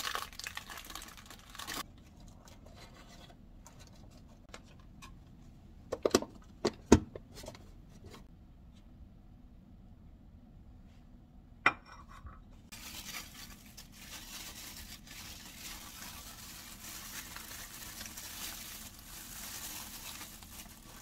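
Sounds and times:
plastic packaging rustling: 0.0 - 4.3, 12.7 - 21.0.

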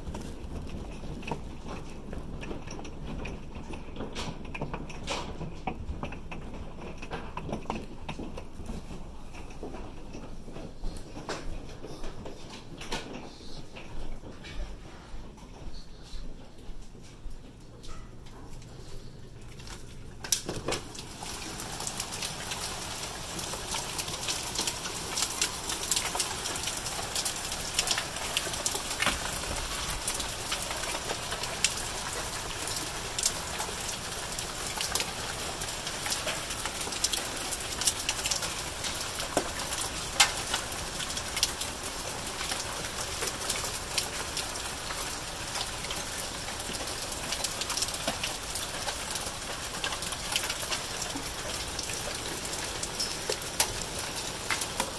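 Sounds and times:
rain hissing: 19.0 - 54.9
hailstones striking wooden deck: 20.2 - 54.9.

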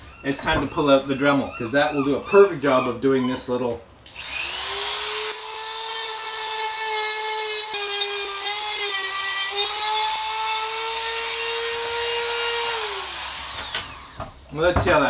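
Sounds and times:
rotary tool whining: 4.1 - 14.2.

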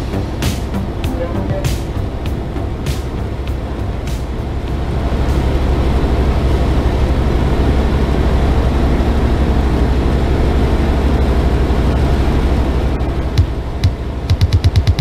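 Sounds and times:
airflow hiss: 0.0 - 8.1
light aircraft engine droning: 0.0 - 14.3.

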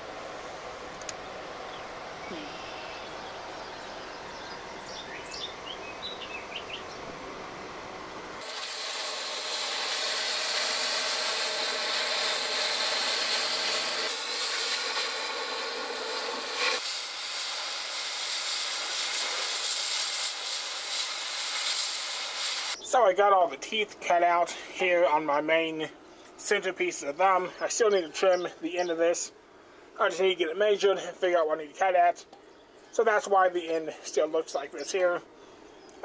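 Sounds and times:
outdoor background: 0.0 - 36.0
cutting torch hissing: 8.4 - 22.8.

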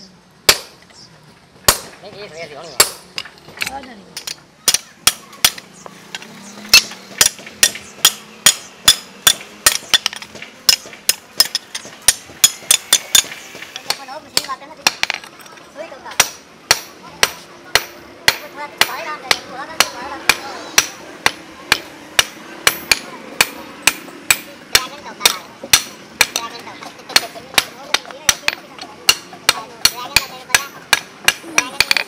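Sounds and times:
hammer striking steel blade on anvil: 6.2 - 15.2.

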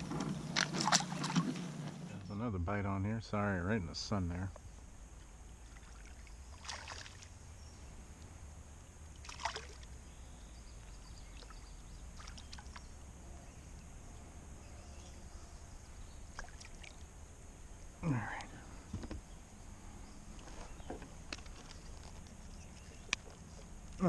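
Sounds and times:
low steady rumble: 0.0 - 24.0
fish splashing at water surface: 5.7 - 7.3, 9.2 - 9.9, 16.3 - 17.0.

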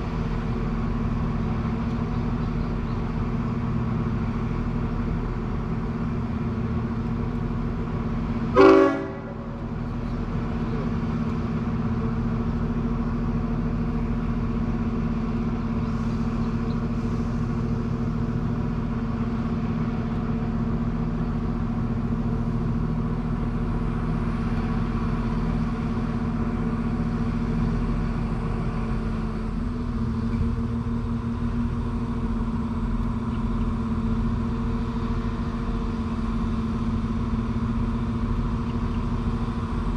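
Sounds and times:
diesel train engine drone: 0.0 - 39.9
train horn toot: 8.5 - 9.7.

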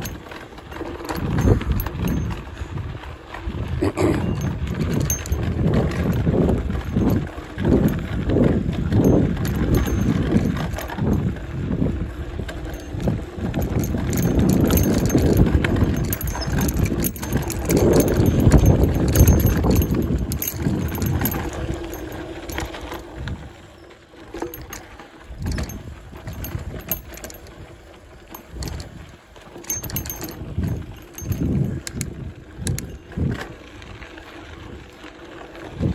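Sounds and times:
bike tyres on dirt: 0.0 - 3.8, 4.6 - 35.9
bike rattling over bumps: 0.0 - 35.9
wind on microphone: 1.1 - 23.5, 29.7 - 33.5.

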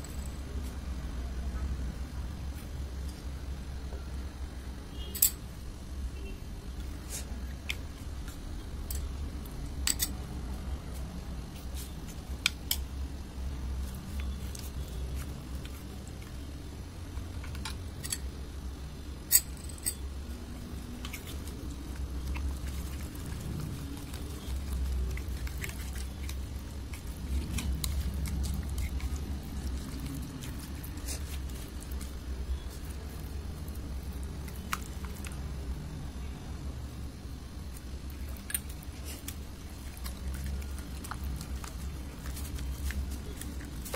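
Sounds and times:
slime squishing under spoons: 13.5 - 18.4, 19.3 - 35.8, 37.6 - 43.9.

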